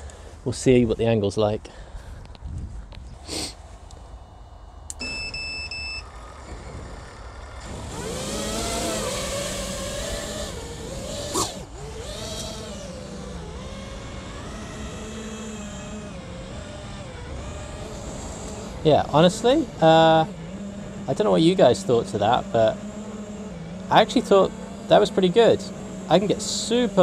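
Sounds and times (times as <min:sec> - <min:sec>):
quadcopter motors whining: 0:01.6 - 0:27.0
short electronic beep: 0:05.0 - 0:06.1.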